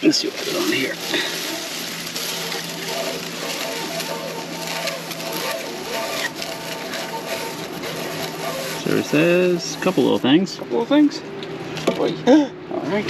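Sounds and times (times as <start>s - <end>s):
droning hum: 0.0s - 13.0s
rope scuffing and rubbing: 0.2s - 10.2s.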